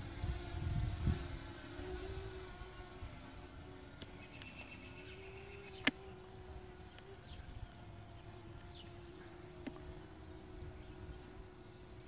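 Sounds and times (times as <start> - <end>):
drone propellers humming: 0.0 - 12.0
birds chirping: 2.6 - 12.0.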